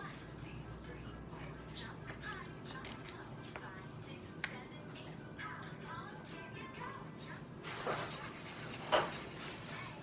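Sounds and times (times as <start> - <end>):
song with singing: 0.0 - 10.0.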